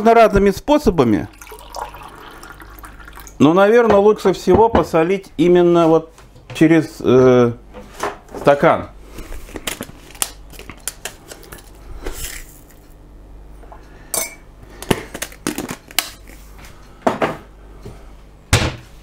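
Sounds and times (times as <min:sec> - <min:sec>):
kitchenware clinking and knocking: 0:03.9 - 0:05.0.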